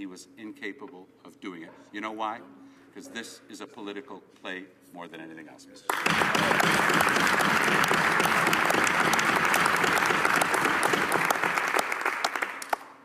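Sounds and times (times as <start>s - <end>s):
crowd clapping: 5.9s - 13.0s.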